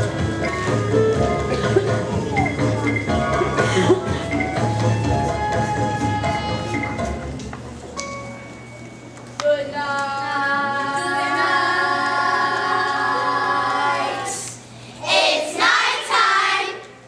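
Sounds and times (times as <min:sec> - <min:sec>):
children's chorus singing: 0:10.7 - 0:16.9.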